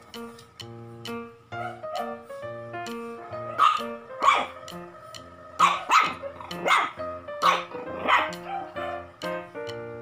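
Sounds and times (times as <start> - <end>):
music with steady beat: 0.0 - 10.0
puppy yapping: 1.6 - 2.2, 3.4 - 4.6, 5.6 - 9.0.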